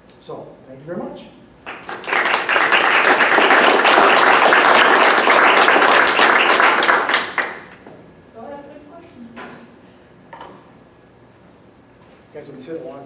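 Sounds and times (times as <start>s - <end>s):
audience applauding: 1.6s - 7.8s.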